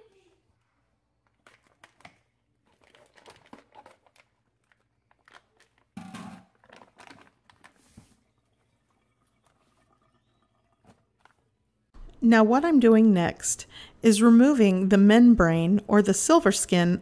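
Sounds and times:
plastic packaging crinkling: 0:01.2 - 0:07.9.

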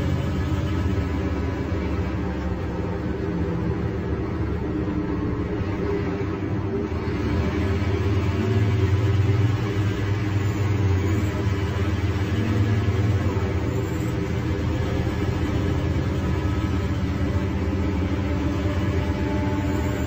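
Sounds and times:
bus diesel engine droning: 0:00.0 - 0:20.0.

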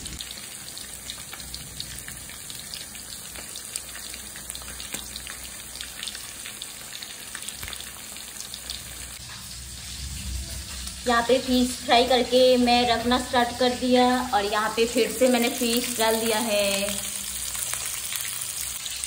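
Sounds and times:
crackles and pops of frying: 0:00.0 - 0:19.0
fish sizzling in hot oil: 0:00.0 - 0:19.0.

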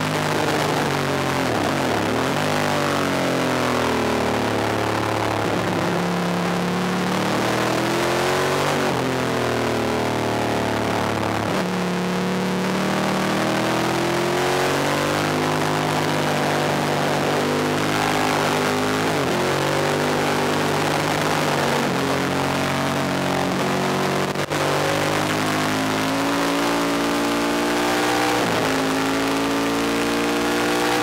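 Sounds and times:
motorcycle engine at racing speed: 0:00.0 - 0:31.0.

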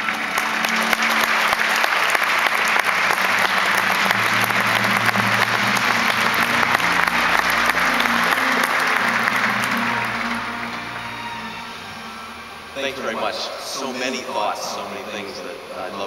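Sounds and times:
audience applauding: 0:00.0 - 0:12.3
music playing: 0:00.0 - 0:16.0.

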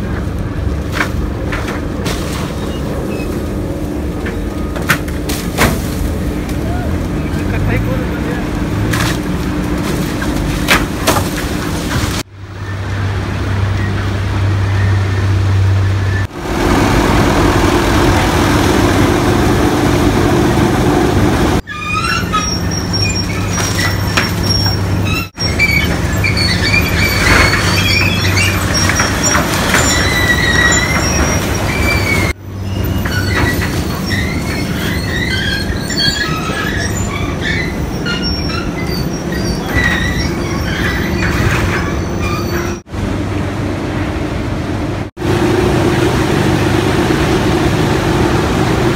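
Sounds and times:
conveyor metallic squeals: 0:02.6 - 0:03.5, 0:21.6 - 0:42.8.

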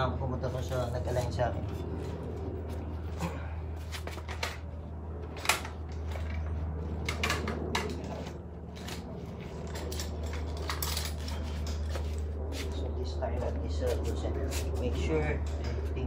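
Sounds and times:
steady low hum: 0:00.0 - 0:16.0
hand tools clicking and clinking: 0:05.4 - 0:12.3.

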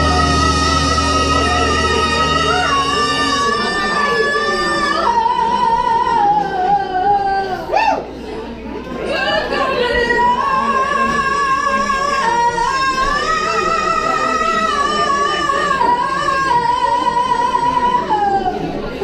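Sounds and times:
singer holding high belted note: 0:00.0 - 0:08.1.

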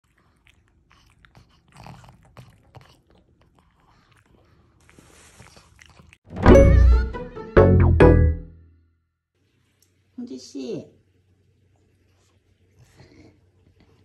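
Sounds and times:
loud jingle music: 0:06.3 - 0:08.7.

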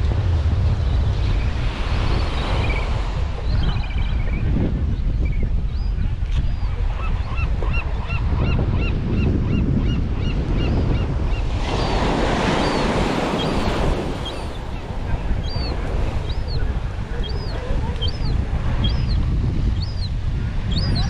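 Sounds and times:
surf washing on a beach: 0:00.0 - 0:21.0
wind rumbling on microphone: 0:00.0 - 0:21.0
bird calling: 0:09.8 - 0:19.2.

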